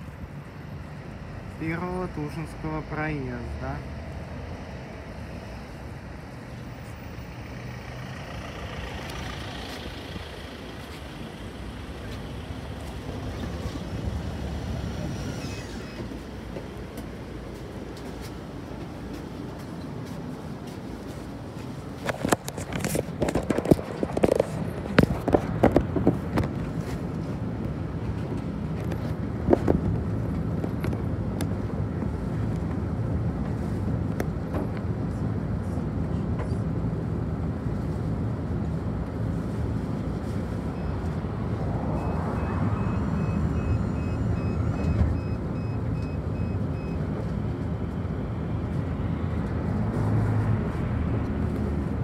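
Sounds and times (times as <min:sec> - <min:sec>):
bus diesel engine idling: 0:00.0 - 0:22.0.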